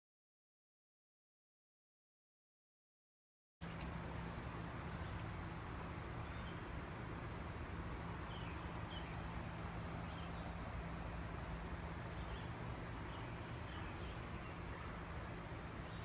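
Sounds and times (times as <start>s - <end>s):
birds chirping: 3.6s - 16.0s.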